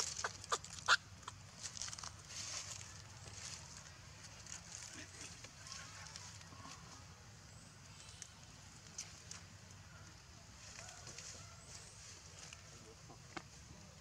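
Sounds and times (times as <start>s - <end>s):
dry leaves crackling: 0.0s - 7.1s, 7.9s - 12.8s.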